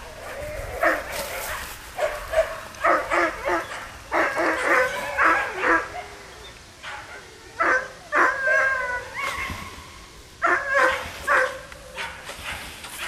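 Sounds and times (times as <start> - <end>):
dog yelping barks: 6.8 - 9.6, 10.4 - 12.1.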